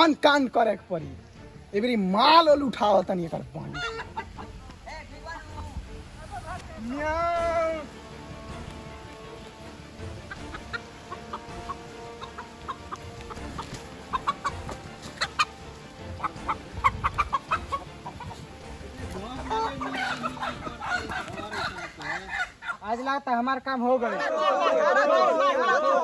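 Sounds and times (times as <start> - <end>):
rooster clucking and squawking: 3.7 - 4.4, 10.2 - 18.5, 19.4 - 22.8.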